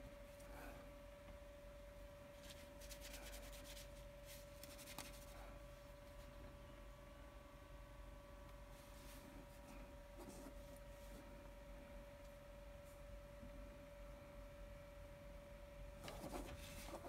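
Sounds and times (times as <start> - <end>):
faint hum: 0.0 - 17.0
rapid scratchy rubbing: 2.4 - 5.4.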